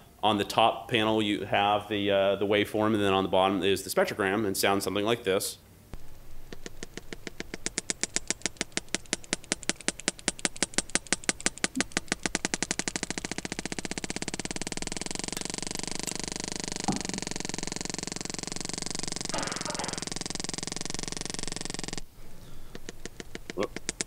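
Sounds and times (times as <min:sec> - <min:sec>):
whale echolocation clicks: 0:06.0 - 0:22.1, 0:22.7 - 0:24.0
thump: 0:16.9 - 0:17.2.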